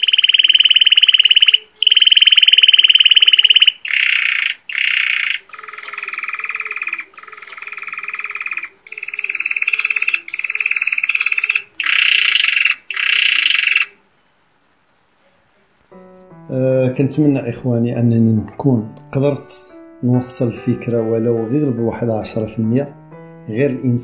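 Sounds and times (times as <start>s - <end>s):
canary singing rolling trills: 0.0s - 14.0s.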